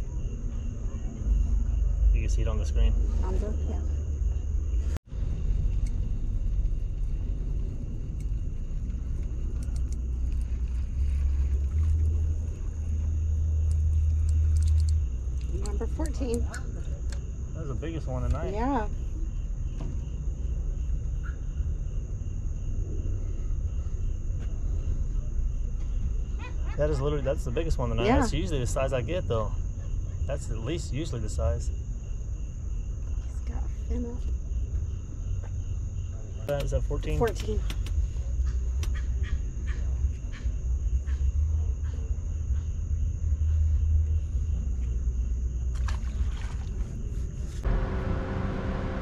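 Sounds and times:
low rumble: 0.0s - 17.8s, 46.6s - 49.0s
insects trilling: 0.0s - 49.0s.

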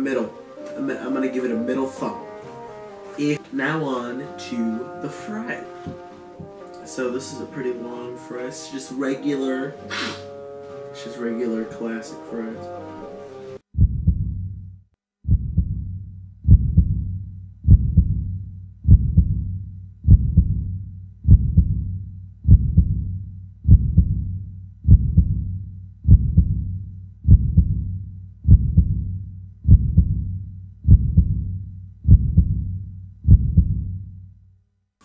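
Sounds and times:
heartbeat double thump: 13.8s - 34.0s.

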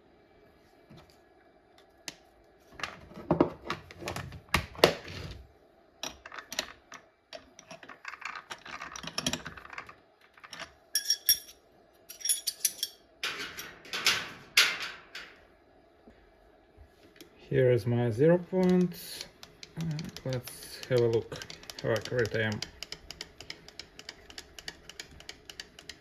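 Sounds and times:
wrenches clicking on metal: 18.6s - 26.0s.

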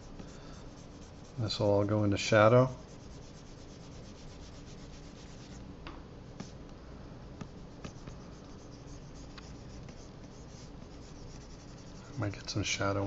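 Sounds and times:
stylus scratching on tablet: 0.0s - 1.7s, 2.8s - 5.6s, 7.5s - 12.6s.

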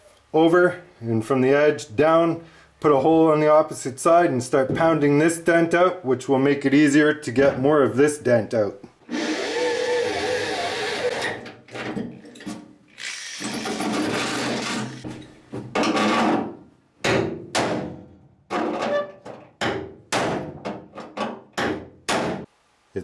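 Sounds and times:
electric drill boring through metal: 9.1s - 11.4s, 13.0s - 15.0s
hammer striking metal bolt: 15.8s - 18.9s, 19.6s - 22.5s.

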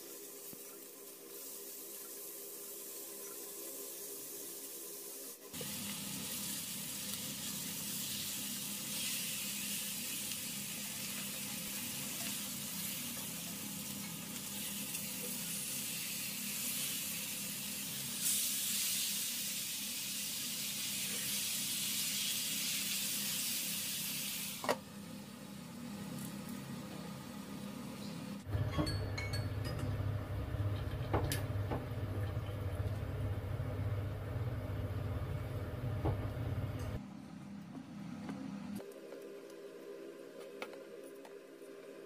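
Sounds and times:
steaks sizzling in a skillet: 5.6s - 24.6s.

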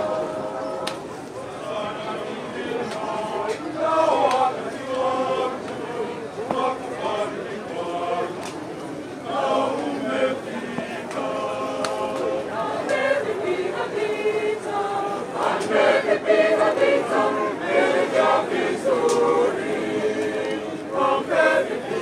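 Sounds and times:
group singing unaccompanied: 0.0s - 22.0s.

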